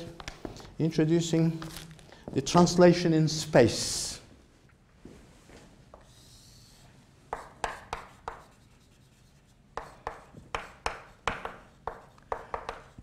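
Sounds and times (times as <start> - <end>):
chalk writing on blackboard: 6.0 - 13.0.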